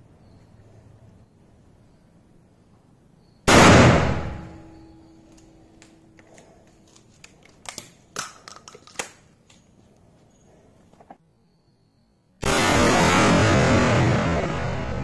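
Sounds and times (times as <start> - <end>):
shotgun blast: 3.5 - 4.8, 12.4 - 15.0.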